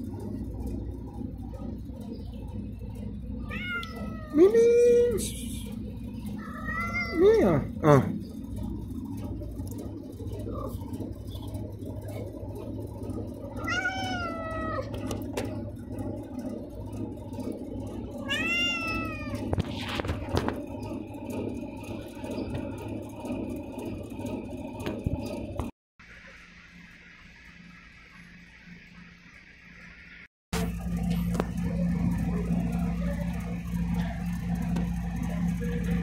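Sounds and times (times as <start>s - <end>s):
low background rumble: 0.0s - 25.7s, 30.6s - 36.0s
cat meowing: 3.5s - 4.5s, 6.4s - 7.2s, 13.6s - 14.9s, 18.3s - 19.5s.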